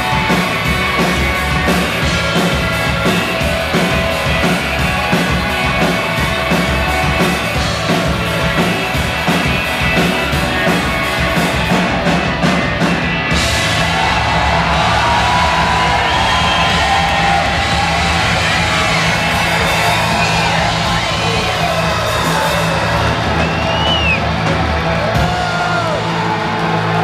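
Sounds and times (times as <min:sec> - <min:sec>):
rock band playing: 0:00.0 - 0:27.0.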